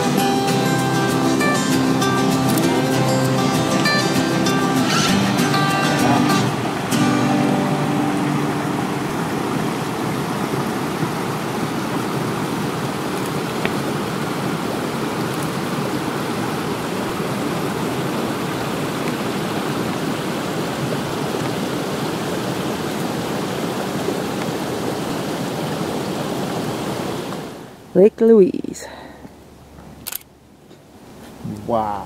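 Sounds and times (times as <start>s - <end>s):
steady rushing noise: 0.0s - 24.1s.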